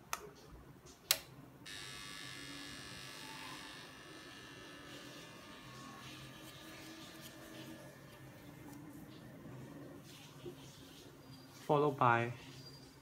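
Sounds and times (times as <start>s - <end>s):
electric buzz with hiss: 1.7s - 8.2s.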